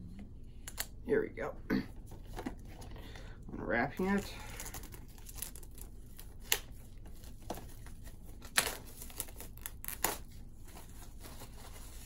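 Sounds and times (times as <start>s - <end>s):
plastic shrink wrap crinkling: 3.8s - 12.0s.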